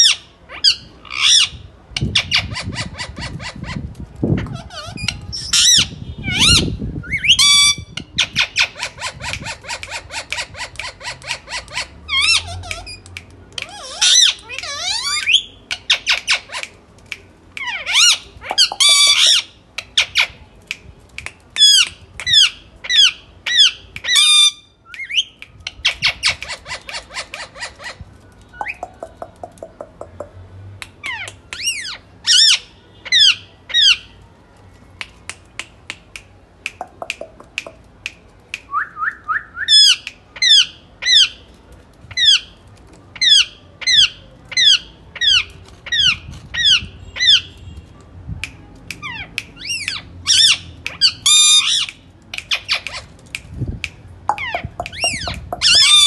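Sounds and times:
parakeets squawking: 0.0s - 13.0s, 13.6s - 16.6s, 17.6s - 20.3s, 43.2s - 47.6s, 49.0s - 53.1s, 54.3s - 56.0s.

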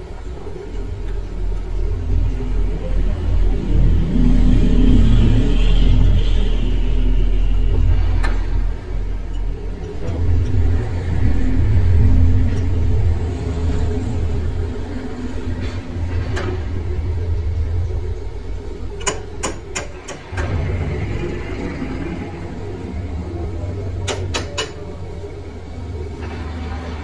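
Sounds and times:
metal lathe rumbling: 0.0s - 27.0s
sharp metallic clicks and knocks: 18.9s - 20.8s, 24.0s - 25.0s.

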